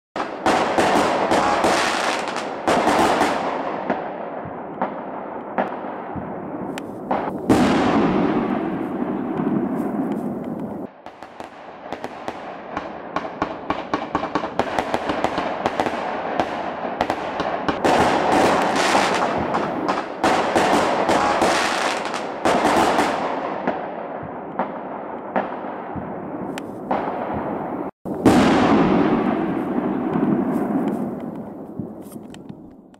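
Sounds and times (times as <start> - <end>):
fireworks bangs: 0.2 - 32.9
fireworks rumble: 0.2 - 32.9
rapid fireworks crackling: 0.2 - 32.9.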